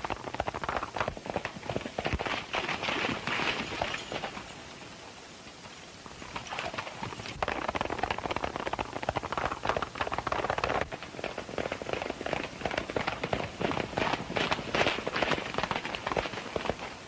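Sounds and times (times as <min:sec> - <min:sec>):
horses galloping on dirt: 0:00.0 - 0:17.0.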